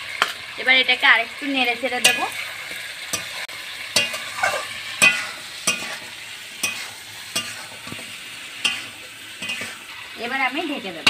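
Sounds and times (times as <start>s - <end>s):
chicken sizzling in oil: 0.0s - 11.0s
spatula scraping metal pan: 2.0s - 10.2s.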